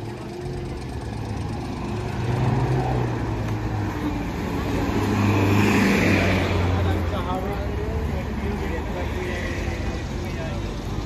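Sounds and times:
road noise: 0.0s - 11.0s
vehicle engine humming: 0.0s - 11.0s.

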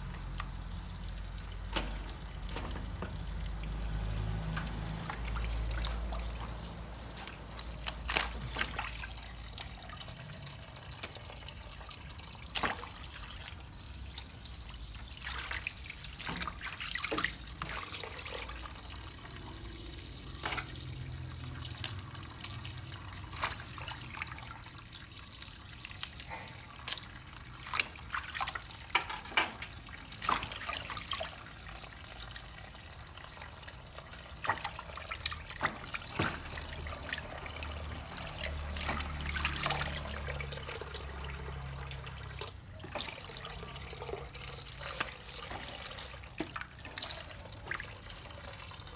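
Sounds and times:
tap water running into a sink: 0.0s - 48.9s
splashes and knocks of hands: 1.6s - 9.8s, 12.4s - 13.4s, 26.0s - 31.3s, 34.4s - 43.3s.

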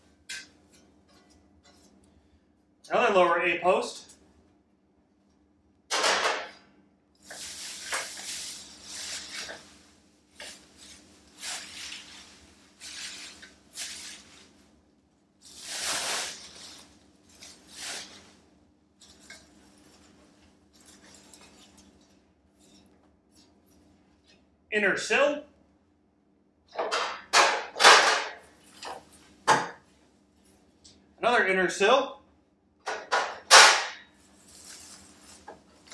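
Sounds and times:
shredded paper rustling: 7.3s - 14.8s, 15.4s - 18.5s, 34.3s - 35.9s
plastic bag crinkling: 15.4s - 18.2s, 34.3s - 35.9s.

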